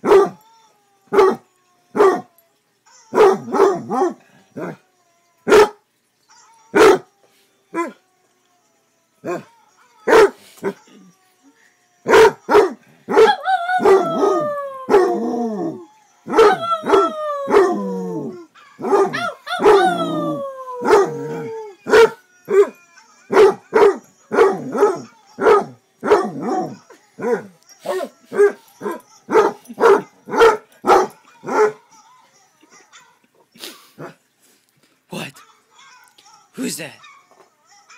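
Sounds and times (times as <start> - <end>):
dog barking: 0.0 - 0.4, 1.2 - 1.4, 2.0 - 2.3, 3.2 - 4.7, 5.5 - 5.8, 6.8 - 7.1, 10.1 - 10.8, 12.1 - 14.0, 18.8 - 19.8, 21.9 - 22.6, 23.3 - 31.8
dog howling: 9.2 - 11.1, 12.0 - 31.8.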